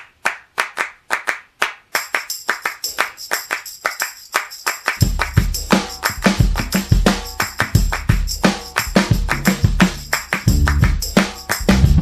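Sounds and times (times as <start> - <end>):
rhythmic hand claps: 0.0 - 12.0
tambourine jingle: 1.9 - 12.0
bass beat: 5.0 - 12.0.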